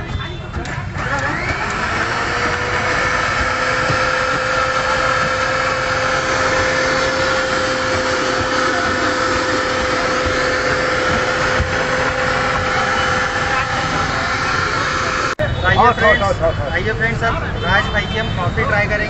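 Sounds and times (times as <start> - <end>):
mixer-grinder whining: 0.5 - 15.4.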